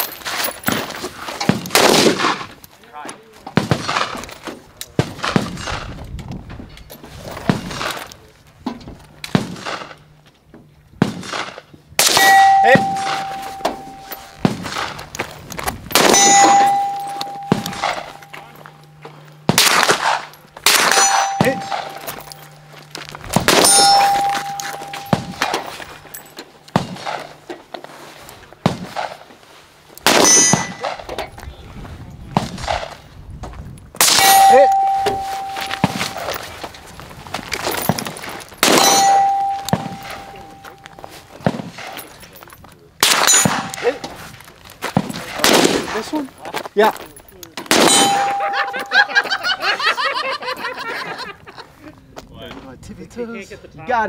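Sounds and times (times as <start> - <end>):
gunshots: 1.5 - 2.6, 3.6 - 4.3, 9.3 - 10.0, 11.0 - 15.1, 15.9 - 18.2, 19.4 - 22.2, 23.3 - 26.0, 30.0 - 31.1, 38.6 - 40.6, 43.0 - 44.0, 45.0 - 46.1, 47.7 - 48.6
steel targets ringing: 12.0 - 15.0, 15.9 - 27.4, 30.0 - 31.2, 34.0 - 36.7, 38.6 - 41.9, 43.0 - 44.1, 47.7 - 50.0.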